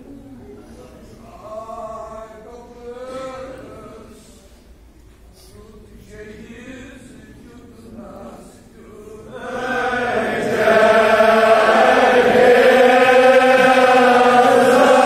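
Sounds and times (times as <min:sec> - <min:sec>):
men chanting in unison: 0:06.8 - 0:15.0.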